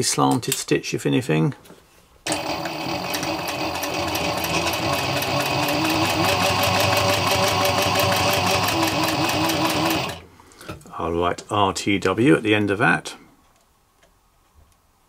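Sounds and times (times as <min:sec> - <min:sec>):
sewing machine running: 0:02.3 - 0:10.3.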